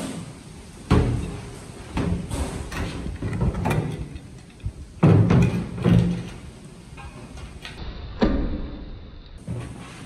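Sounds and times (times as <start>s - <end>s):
knocks and thuds: 5.0s - 6.2s.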